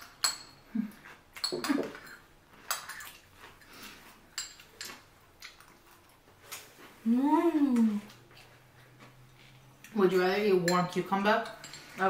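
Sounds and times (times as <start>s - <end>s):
utensils clinking on dishes: 0.0s - 5.7s, 10.1s - 12.0s.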